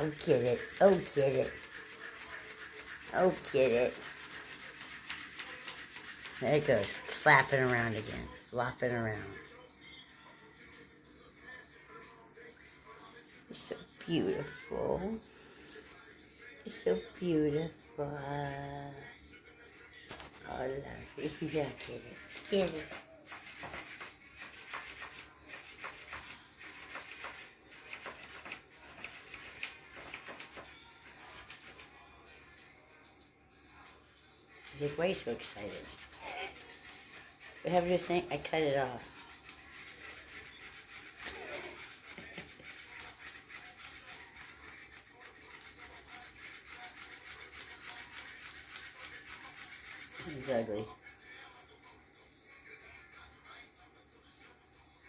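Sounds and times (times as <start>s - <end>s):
toy fish rubbing on carpet: 0.0s - 8.3s, 21.0s - 32.0s, 34.7s - 50.8s.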